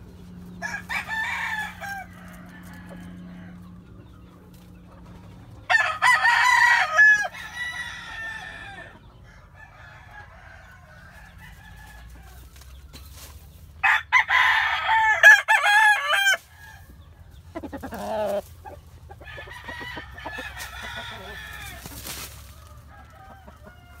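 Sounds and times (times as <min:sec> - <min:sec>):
hen clucking: 0:00.0 - 0:13.9, 0:15.2 - 0:24.0
rooster crowing: 0:00.6 - 0:03.8, 0:05.7 - 0:12.4, 0:13.8 - 0:17.0, 0:19.2 - 0:24.0.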